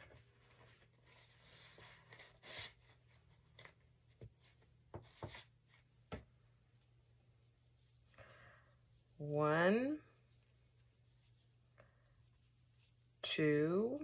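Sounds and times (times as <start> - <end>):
handling rustles and taps: 3.3 - 7.0.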